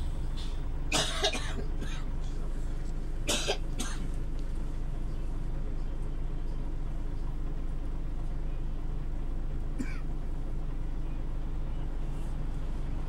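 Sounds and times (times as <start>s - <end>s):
bus engine drone: 0.0s - 13.0s
person coughing: 0.9s - 2.1s, 3.3s - 4.1s, 9.8s - 10.0s.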